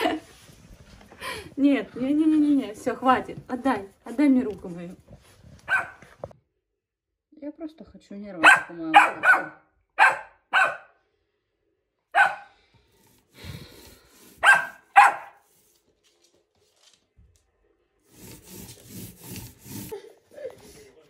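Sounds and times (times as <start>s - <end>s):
puppy barking: 5.7s - 6.1s, 8.4s - 11.0s, 12.1s - 12.6s, 14.4s - 15.4s.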